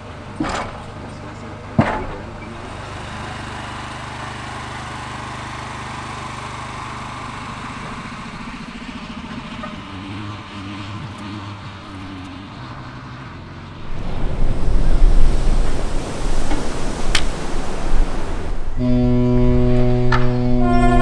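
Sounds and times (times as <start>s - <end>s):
low mechanical rumble: 13.7s - 21.0s.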